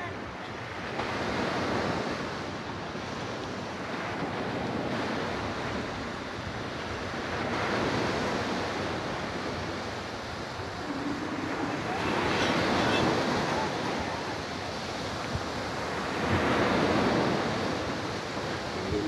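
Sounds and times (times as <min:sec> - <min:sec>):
ocean surf washing ashore: 0:00.0 - 0:19.0
wind on microphone: 0:01.1 - 0:19.0.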